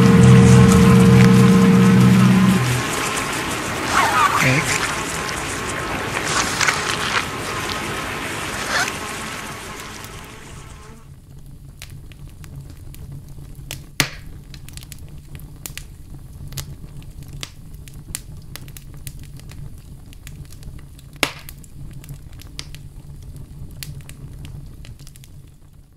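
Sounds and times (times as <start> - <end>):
steady low rumble: 0.0 - 11.0
irregular crackles and pops: 0.0 - 25.9.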